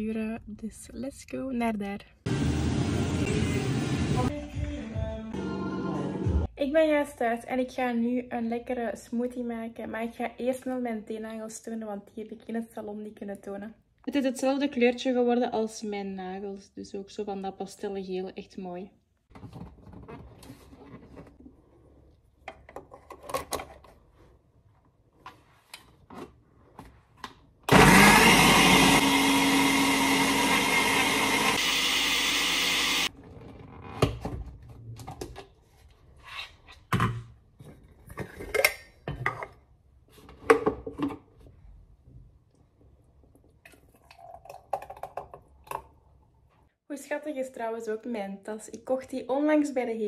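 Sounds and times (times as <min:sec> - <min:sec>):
blender running: 0:27.7 - 0:33.1.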